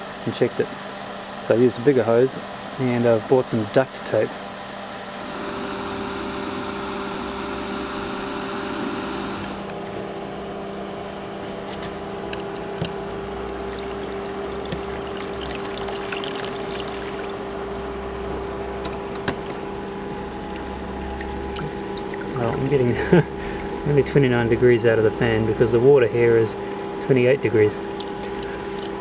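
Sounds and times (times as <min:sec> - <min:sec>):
pump motor hum: 0:00.0 - 0:27.1
water splashing and trickling: 0:13.4 - 0:18.7, 0:19.3 - 0:23.1.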